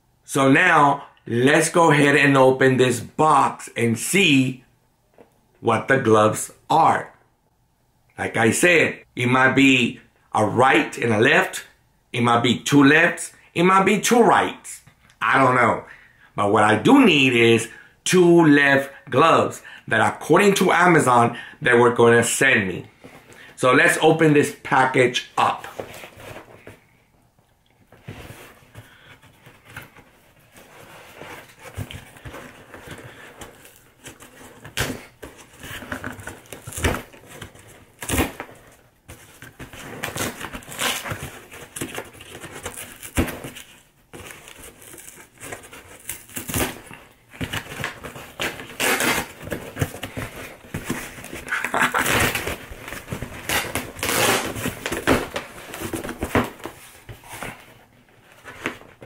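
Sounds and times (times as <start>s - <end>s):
cardboard box being torn open: 50.9s - 56.4s.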